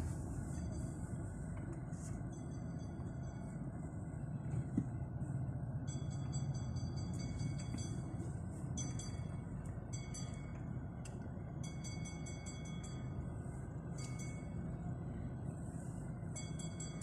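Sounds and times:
car engine and road noise: 0.0 - 17.0
high metallic chiming clinks: 5.9 - 10.7, 16.3 - 17.0.

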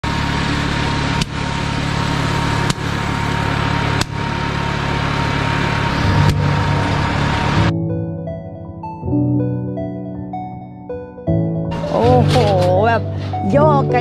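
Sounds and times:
small engine running: 0.0 - 7.7.

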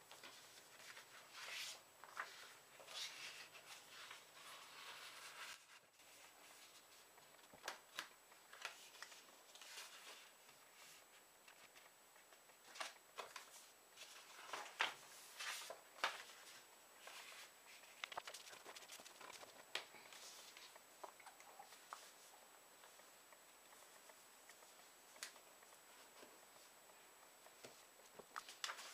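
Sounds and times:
paper rustling as folded: 0.1 - 20.8, 27.6 - 28.9.

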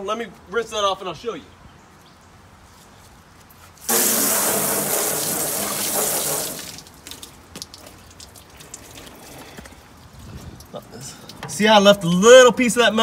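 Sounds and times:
hose spraying water on metal: 3.8 - 9.2
water dripping and ticking: 5.0 - 13.0.

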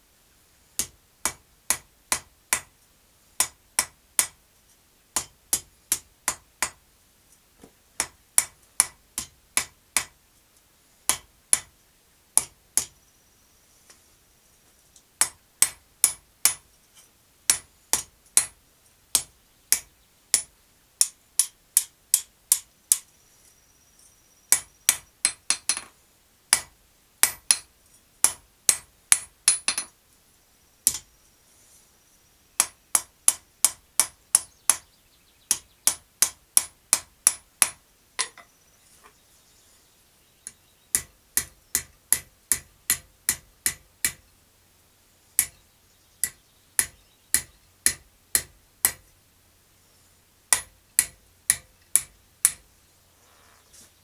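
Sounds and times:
hammer striking steel on anvil: 26.5 - 29.9, 46.2 - 49.0, 50.5 - 52.6.

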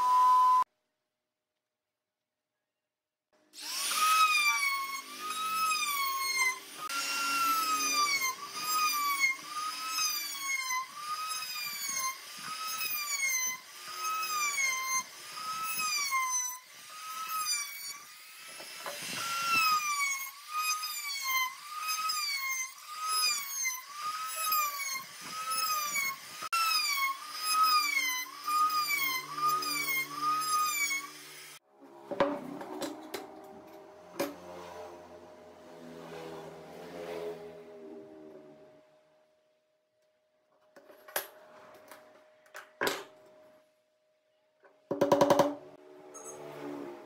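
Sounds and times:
router bit rasping wood: 3.6 - 31.6
router motor whine: 3.6 - 31.6.

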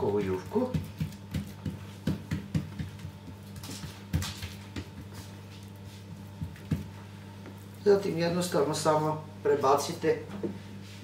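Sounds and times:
hands patting dough: 0.0 - 7.8
steady low hum: 0.0 - 11.0.

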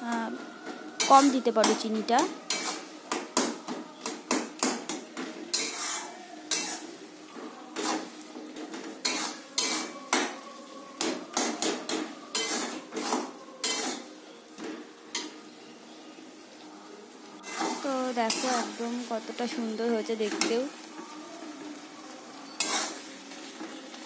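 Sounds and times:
metal spatula scraping metal pan: 1.0 - 3.5, 4.1 - 6.9, 7.7 - 10.4, 11.0 - 14.1, 17.4 - 18.8, 22.5 - 23.1.

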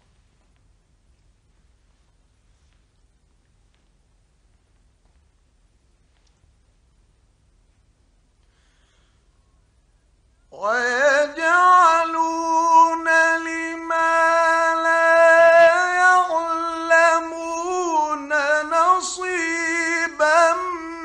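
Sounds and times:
man chanting melodically: 10.6 - 21.0.

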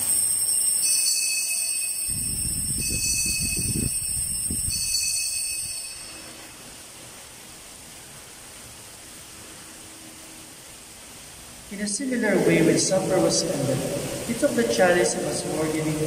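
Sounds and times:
altar bells ringing: 0.0 - 6.8.

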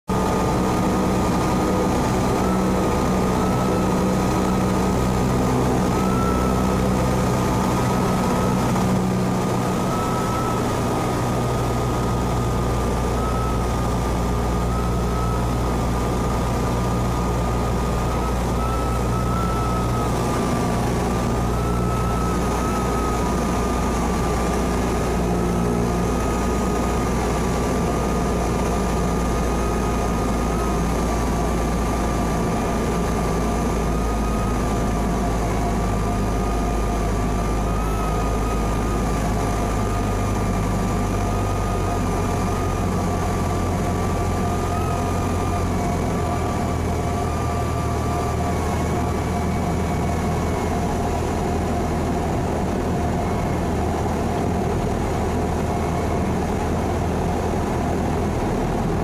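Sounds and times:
propeller plane engine droning: 0.1 - 59.0
thin steady whine: 0.1 - 59.0.

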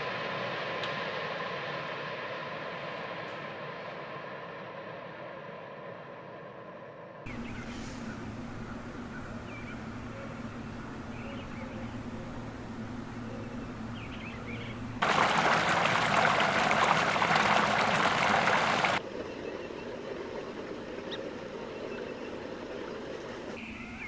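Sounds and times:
creek water rushing: 14.7 - 19.0.

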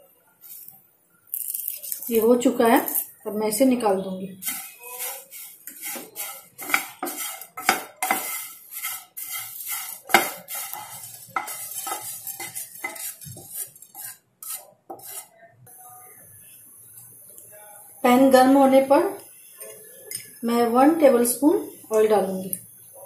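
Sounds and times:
wooden spatula scraping pan: 4.4 - 15.3.

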